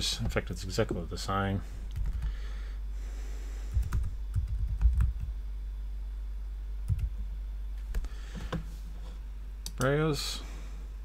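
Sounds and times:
low hum: 0.0 - 11.0
typing on keyboard: 3.8 - 5.3.

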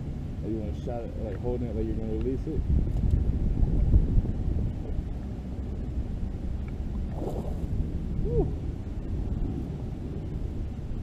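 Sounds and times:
wind buffeting microphone: 0.0 - 11.0
water splash: 7.0 - 7.8.

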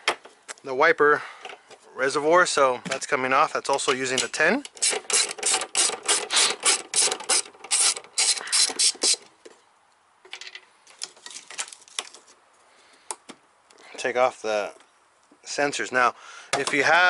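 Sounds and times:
ratchet wrench clicking: 4.7 - 9.2.

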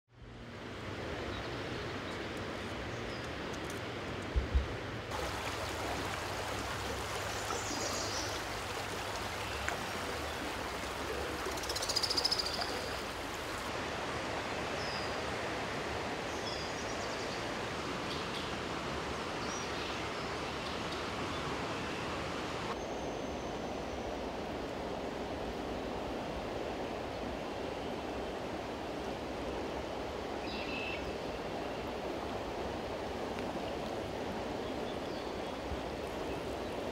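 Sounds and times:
river water rushing: 4.9 - 22.8.

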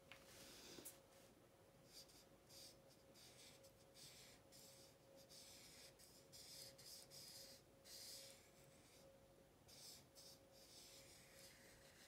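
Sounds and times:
faint steady hum: 0.0 - 12.0
pen scratching on paper: 1.9 - 9.0, 9.7 - 12.0.

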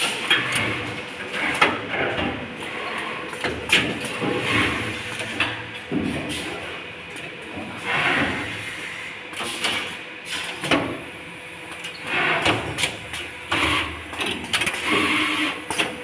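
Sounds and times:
machine clicks and clacks: 0.0 - 5.8, 9.3 - 11.0, 11.7 - 16.0.

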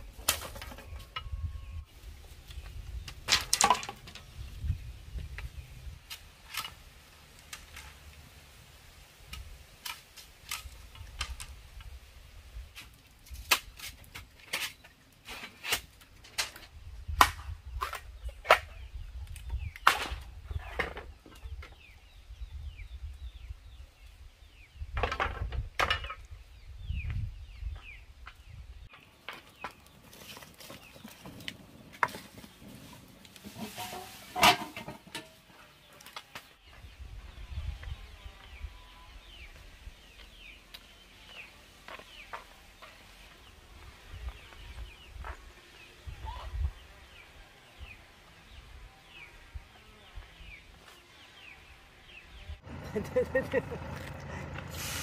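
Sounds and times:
sharp knocks and cracks: 3.1 - 4.3, 12.8 - 14.8, 15.6 - 18.8
chickens clucking: 29.9 - 36.0.

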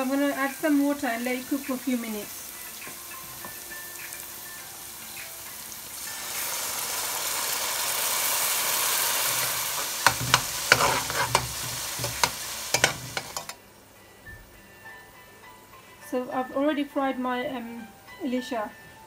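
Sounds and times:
spices sizzling in hot oil: 0.0 - 13.6
spatula scraping a pan: 9.1 - 13.6.

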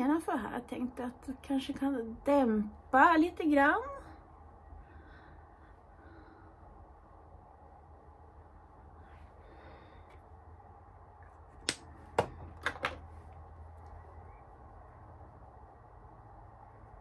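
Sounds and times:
low steady hum: 0.0 - 17.0
makeup items clicking on table: 11.6 - 13.1.

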